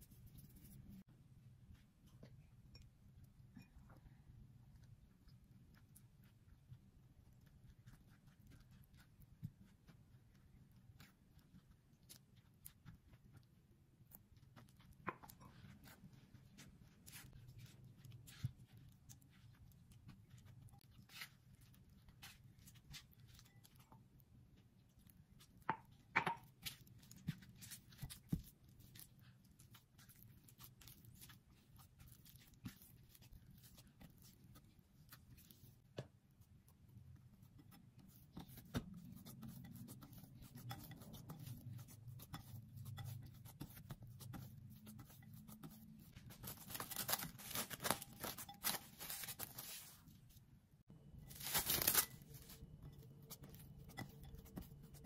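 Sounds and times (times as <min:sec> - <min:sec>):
hands pressing dough: 0:05.2 - 0:55.0
spatula scraping ceramic bowl: 0:37.5 - 0:49.8
cling film rustling and tearing: 0:46.5 - 0:50.0, 0:51.3 - 0:52.5.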